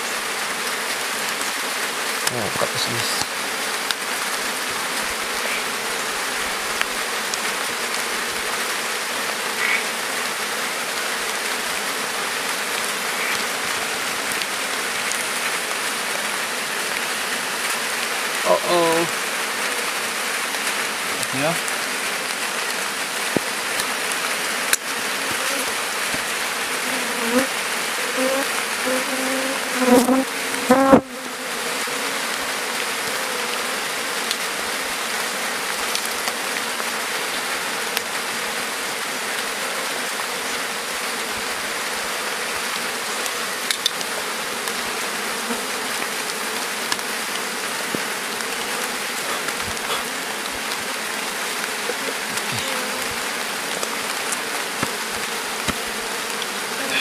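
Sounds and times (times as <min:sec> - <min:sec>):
bees buzzing: 0:08.0 - 0:35.4, 0:39.6 - 0:57.0.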